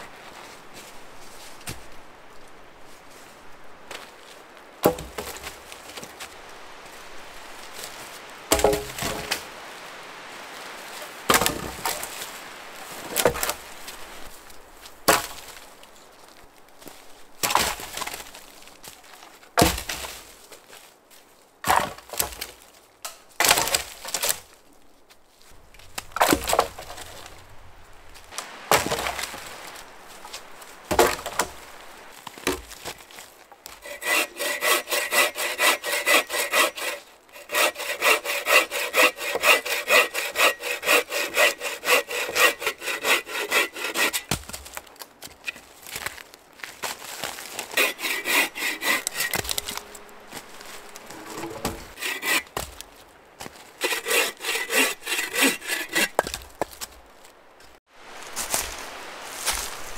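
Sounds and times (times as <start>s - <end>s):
dry wood snapping: 44.0s - 50.0s.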